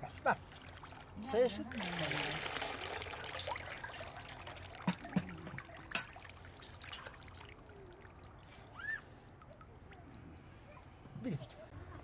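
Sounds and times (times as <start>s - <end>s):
water trickling and pouring: 0.1s - 11.3s.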